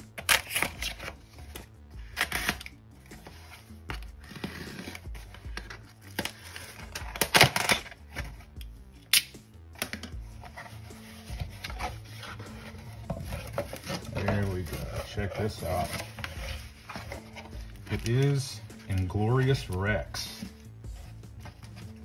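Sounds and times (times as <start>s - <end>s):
knife slitting packing tape: 0.1s - 1.2s, 2.0s - 2.8s, 6.0s - 8.0s.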